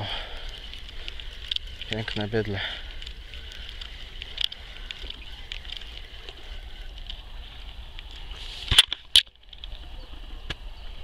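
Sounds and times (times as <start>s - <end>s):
faint ticks: 0.0s - 8.2s.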